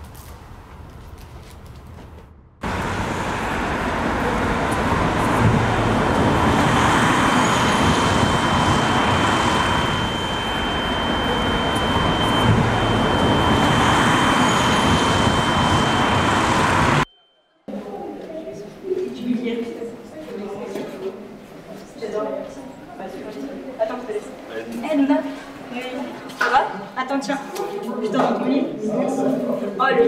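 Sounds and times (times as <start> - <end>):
dense city traffic: 0.0 - 17.1
high-pitched steady tone: 2.7 - 18.3.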